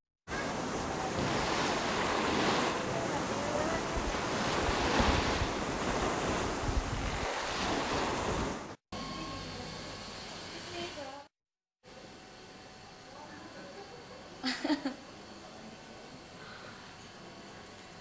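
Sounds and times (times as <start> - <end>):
wind buffeting microphone: 0.6 - 8.7.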